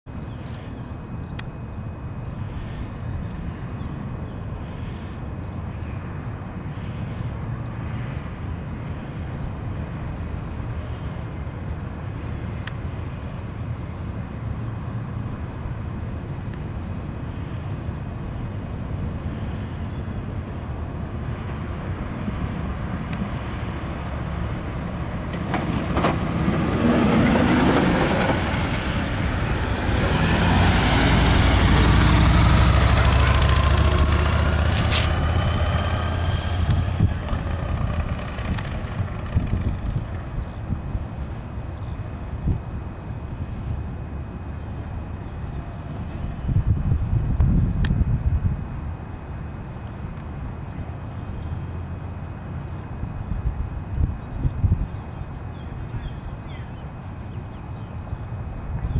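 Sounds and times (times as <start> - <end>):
low steady engine hum: 0.1 - 58.9
vehicles driving past: 0.1 - 58.9
steady low rumble: 28.1 - 49.2.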